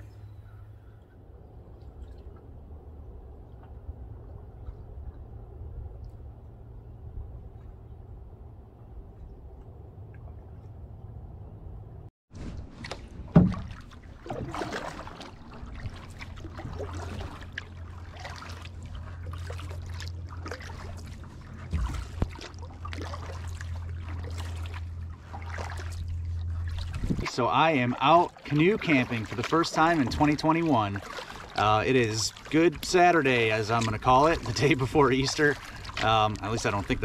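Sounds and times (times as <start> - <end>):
steady low hum: 0.0 - 37.0
steady low rumble: 0.0 - 37.0
canoe paddle strokes in water: 12.3 - 37.0
paddle thumps against hull: 12.4 - 17.4, 21.6 - 23.1.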